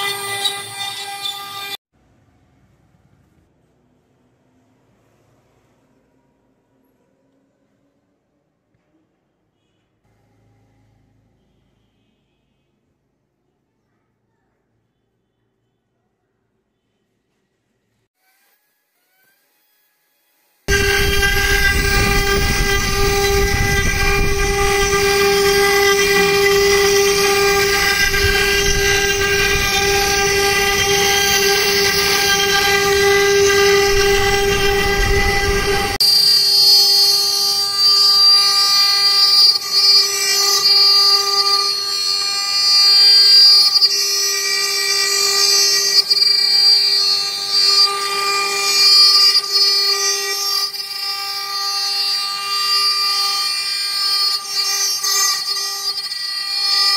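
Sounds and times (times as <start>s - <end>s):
router spindle whine: 0.0s - 1.8s, 20.7s - 56.9s
low rumble: 20.7s - 36.0s.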